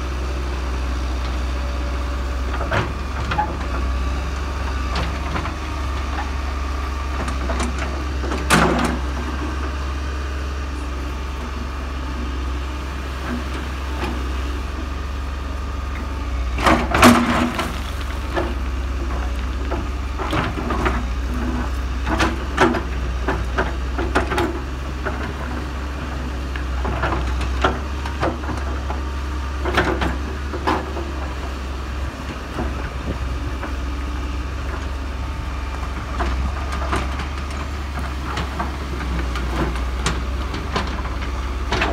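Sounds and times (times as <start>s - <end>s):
excavator engine rumble: 0.0s - 41.9s
steel bucket scraping rocks: 16.7s - 19.4s.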